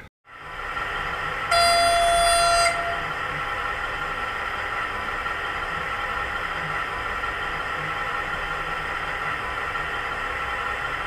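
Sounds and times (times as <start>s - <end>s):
recorded diesel engine sound: 0.0s - 11.0s
model train horn blast: 1.5s - 3.2s.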